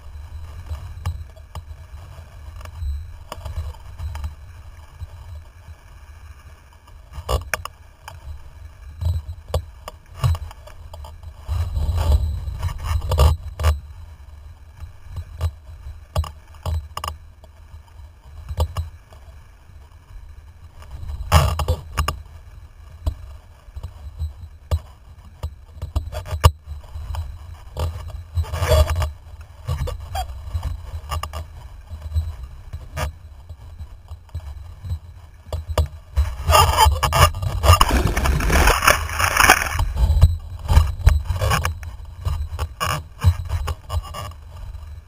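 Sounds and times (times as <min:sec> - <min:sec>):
wind rumbling on microphone: 0:00.0 - 0:45.0
clicks and rattles from gear: 0:37.0 - 0:44.3.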